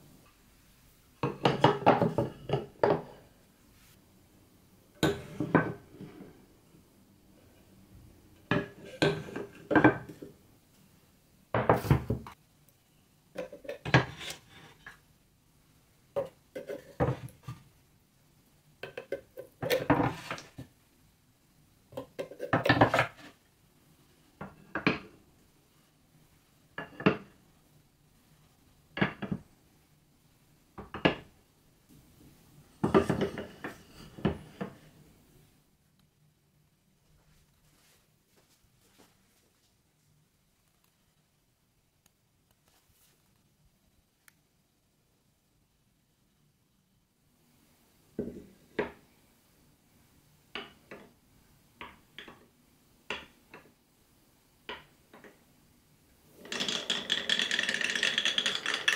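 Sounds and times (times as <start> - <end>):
wooden blocks knocking and clattering: 1.2 - 3.2, 8.4 - 10.3, 13.4 - 15.0, 18.8 - 20.7, 22.0 - 23.4, 24.4 - 25.2, 26.8 - 27.4, 28.9 - 29.5, 30.8 - 31.3, 32.8 - 34.9, 50.5 - 51.2, 53.1 - 53.8, 56.3 - 58.9.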